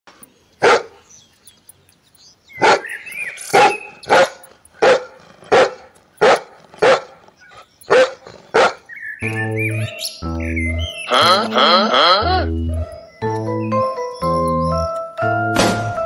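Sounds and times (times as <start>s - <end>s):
dog barking loudly: 0.6s - 1.0s, 2.6s - 7.2s, 7.9s - 8.9s.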